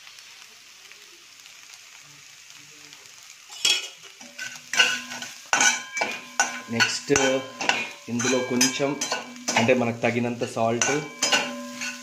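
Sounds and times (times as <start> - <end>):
eggs sizzling in oil: 0.0 - 12.0
spatula scraping a pan: 3.5 - 12.0.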